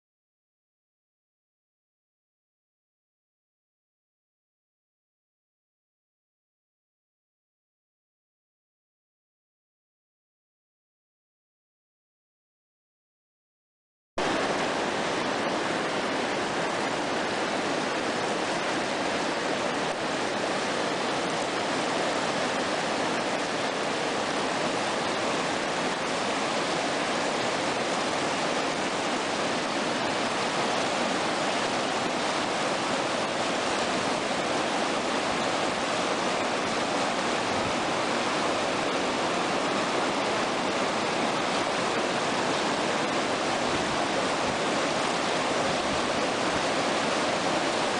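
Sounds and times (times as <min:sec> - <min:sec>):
water rushing over rocks: 0:14.2 - 0:47.9.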